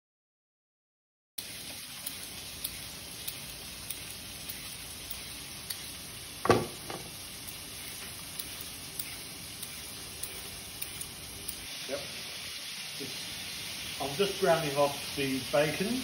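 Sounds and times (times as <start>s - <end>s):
meat sizzling in a frying pan: 1.4s - 16.0s
vegetable peeler scraping: 2.0s - 6.0s, 7.5s - 11.6s
loud knock: 6.4s - 7.1s.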